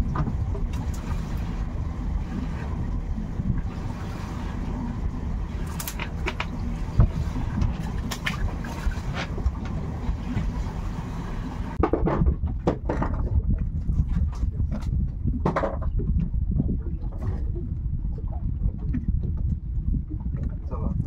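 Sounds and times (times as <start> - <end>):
boat engine rumbling: 0.0 - 21.0
wind at sea: 0.0 - 21.0.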